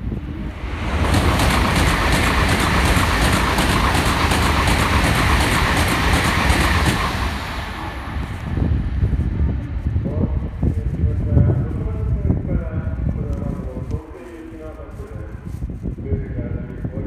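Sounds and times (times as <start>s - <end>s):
high-speed train rushing past: 0.0s - 13.3s.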